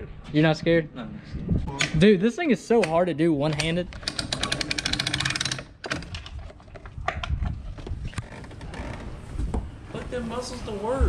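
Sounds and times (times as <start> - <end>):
hand ratchet clicking: 3.6 - 6.0.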